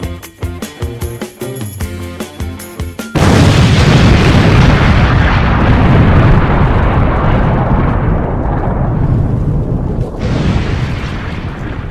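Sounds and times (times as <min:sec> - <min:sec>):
explosion and fire rumble: 0:03.2 - 0:11.9.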